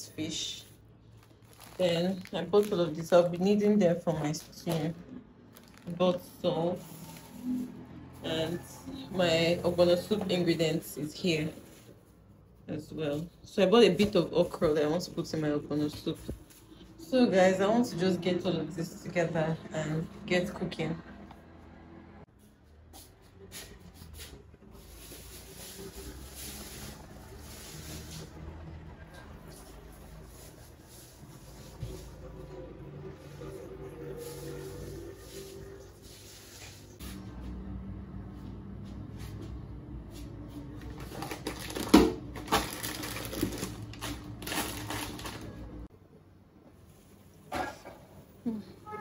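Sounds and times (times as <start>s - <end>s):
plastic bags rustling and knocking: 1.2s - 7.4s, 40.6s - 45.9s.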